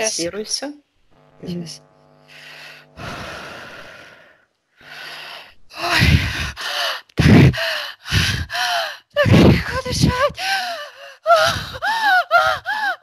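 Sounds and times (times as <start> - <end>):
woman breathing heavily: 2.3 - 13.0
woman gasping and sighing: 4.8 - 13.0.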